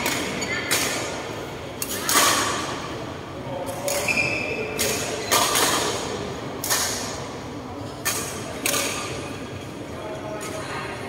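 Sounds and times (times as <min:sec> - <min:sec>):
racket hitting shuttlecock: 0:00.0 - 0:01.2, 0:03.8 - 0:04.2, 0:08.0 - 0:09.1.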